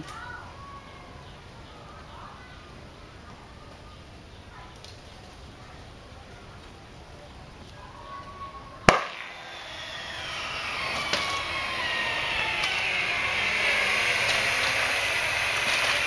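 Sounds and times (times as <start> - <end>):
gas igniting with loud pop: 8.8 - 16.0
hiss: 8.9 - 16.0.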